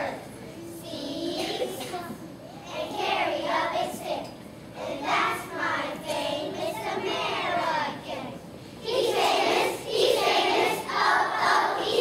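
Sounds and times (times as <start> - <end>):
children's choir singing: 2.7 - 12.0.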